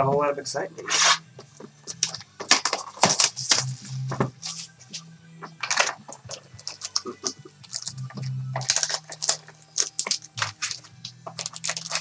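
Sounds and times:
card pack wrappers crinkling: 1.9 - 4.7, 5.6 - 12.0.

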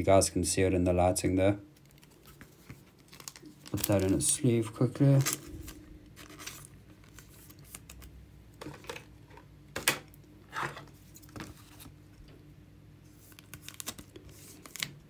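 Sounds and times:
plastic sleeve rustling: 1.7 - 9.5, 10.5 - 12.2, 13.0 - 15.0.

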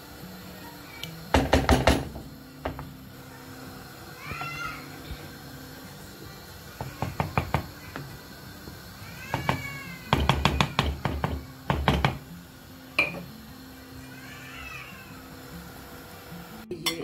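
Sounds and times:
spoon knocking against pot: 6.8 - 8.1, 9.3 - 12.3, 13.0 - 13.3.

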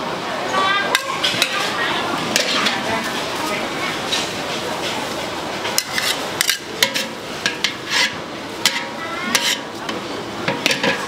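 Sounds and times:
metal spatula scraping a pan: 2.3 - 2.8, 5.8 - 9.8, 10.5 - 11.0.

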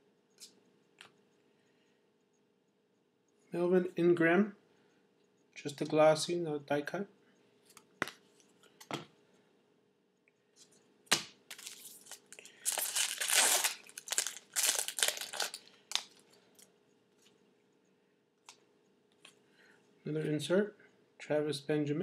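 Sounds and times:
foil wrapper crinkling and tearing: 11.5 - 16.3.

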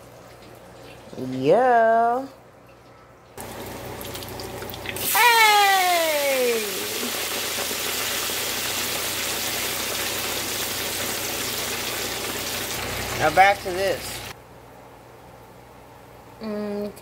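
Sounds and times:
hot oil sizzling and bubbling: 3.4 - 14.4.

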